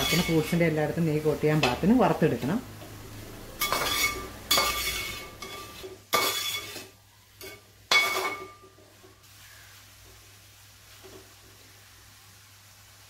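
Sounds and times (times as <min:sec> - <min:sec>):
metal spoon scraping steel pan: 0:00.0 - 0:00.6, 0:03.6 - 0:08.6.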